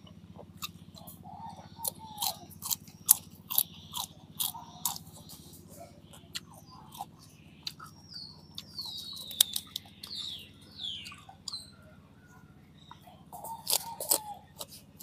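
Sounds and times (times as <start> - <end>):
crunching lettuce: 0.0 - 11.8, 12.9 - 15.0
mouth clicks from chewing: 1.8 - 10.4, 13.4 - 14.9
lettuce leaves crackling: 8.6 - 10.3, 13.4 - 15.0.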